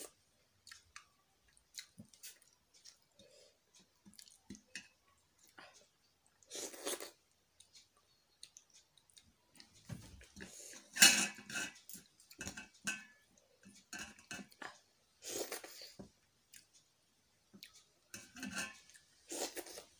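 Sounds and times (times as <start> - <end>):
chewing with lip smacks: 0.6 - 3.2, 4.0 - 4.7.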